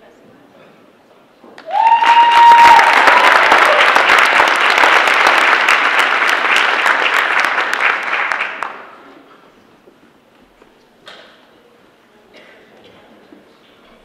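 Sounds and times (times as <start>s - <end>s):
audience applauding: 1.6s - 9.0s.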